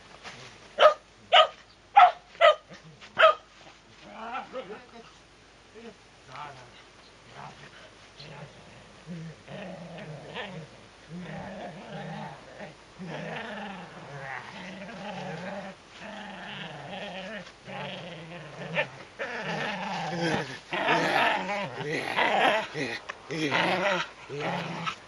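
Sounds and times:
dog play growling: 7.4 - 25.0.

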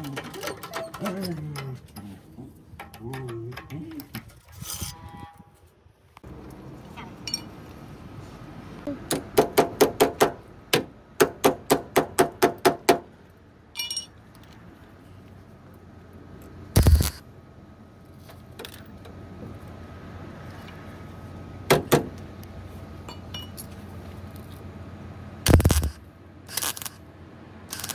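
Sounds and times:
metallic clink: 13.8 - 14.2.

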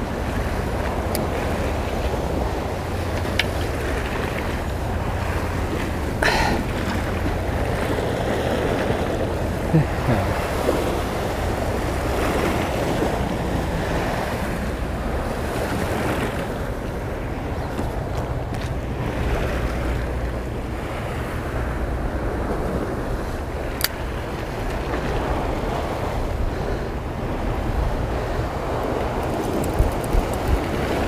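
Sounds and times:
waves washing against rocks: 0.0 - 20.1, 21.3 - 31.0
wind buffeting microphone: 0.0 - 31.0.

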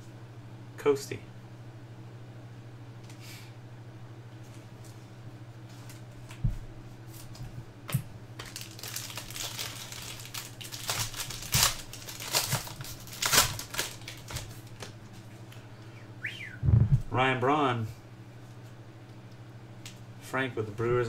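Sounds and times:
foil wrapper crinkling and tearing: 8.4 - 14.9.

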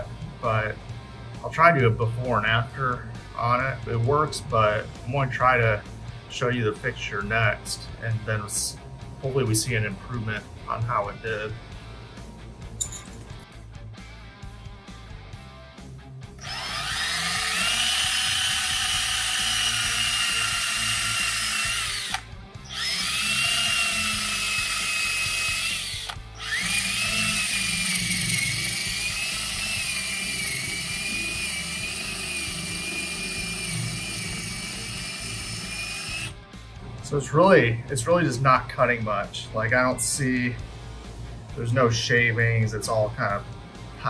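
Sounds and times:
cordless drill whining: 16.4 - 36.4
drill bit grinding wood: 16.4 - 36.4.

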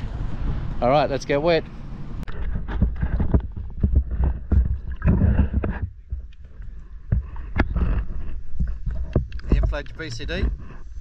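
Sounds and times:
water sloshing against camera: 2.2 - 11.0.

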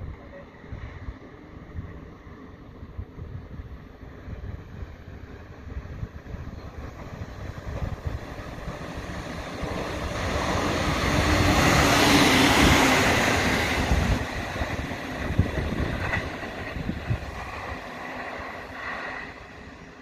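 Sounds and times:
electric train passing: 0.0 - 20.0.

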